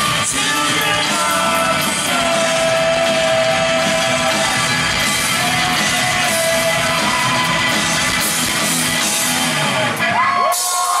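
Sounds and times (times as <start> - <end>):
rock band playing loudly: 0.0 - 11.0
audience whooping and cheering: 2.5 - 11.0.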